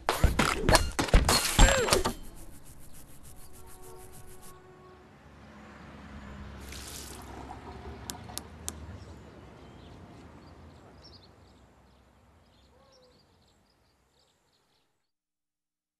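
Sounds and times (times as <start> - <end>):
toothbrush scrubbing: 2.0 - 4.6, 6.6 - 8.3.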